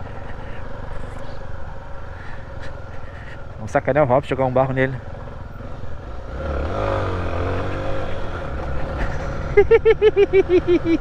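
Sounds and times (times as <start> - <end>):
person laughing: 0.0 - 0.8, 7.4 - 11.0
motorcycle engine revving: 4.6 - 11.0.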